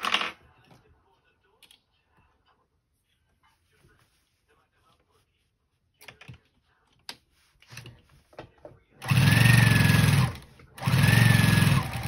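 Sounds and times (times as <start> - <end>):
sewing machine stitching: 9.0 - 12.0.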